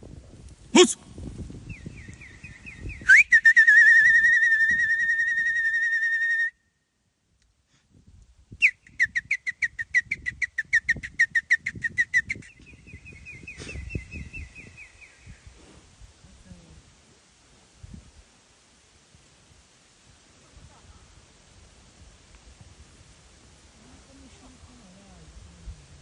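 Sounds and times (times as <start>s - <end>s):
high whistled trill: 2.8s - 6.6s
short whistle pulses: 2.9s - 6.7s, 8.6s - 12.6s.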